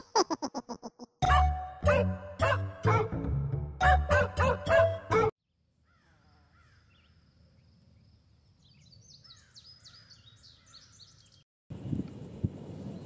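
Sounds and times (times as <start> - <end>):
birds chirping: 8.6 - 11.4.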